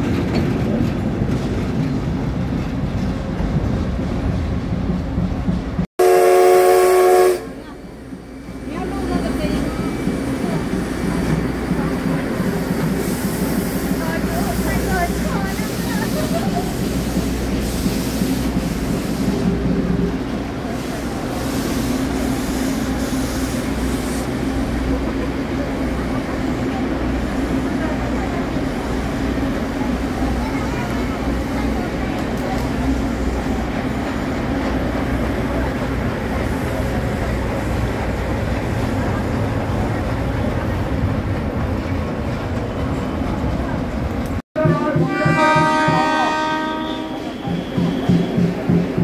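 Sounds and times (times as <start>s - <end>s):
train engine and wheels rumbling: 0.0s - 49.0s
steam locomotive whistle: 6.0s - 7.6s, 44.6s - 48.8s
steam hissing in pulses: 8.1s - 32.0s.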